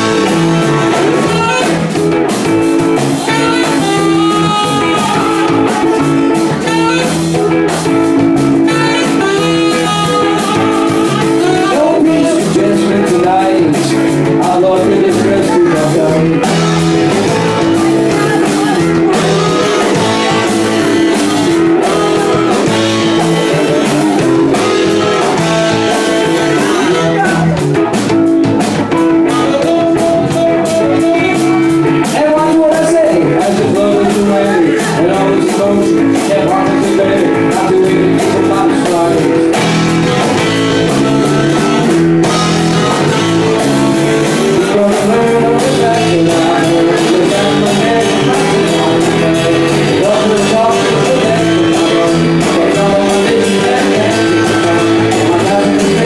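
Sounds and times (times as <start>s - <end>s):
saxophone: 0.0s - 12.5s, 16.2s - 32.3s, 39.2s - 45.0s
drums: 0.0s - 56.0s
electric guitar: 0.0s - 56.0s.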